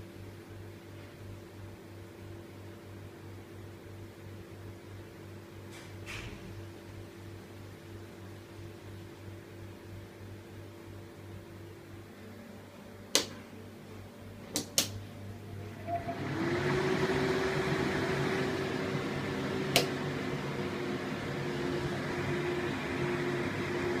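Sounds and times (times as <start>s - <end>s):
exhaust hood fan rushing: 12.1s - 24.0s.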